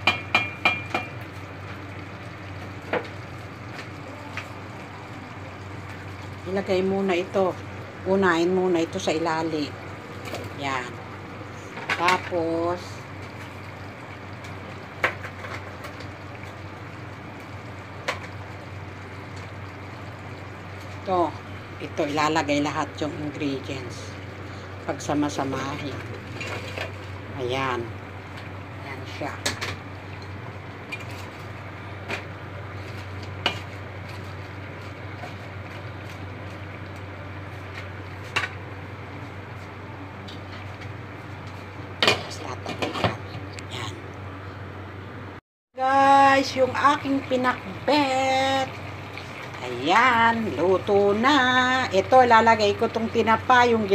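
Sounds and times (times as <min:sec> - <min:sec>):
spatula knocking against pot: 0:00.0 - 0:01.2
pot cooking on stove: 0:00.0 - 0:45.2, 0:45.8 - 0:53.9
steady hiss and low hum: 0:00.0 - 0:53.9.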